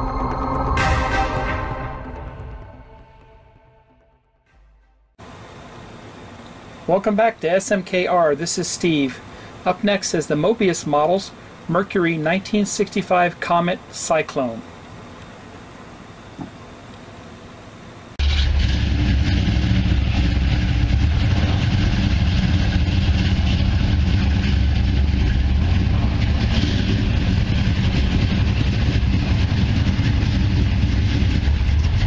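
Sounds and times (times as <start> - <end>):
car engine idling loudly: 14.6 - 32.0.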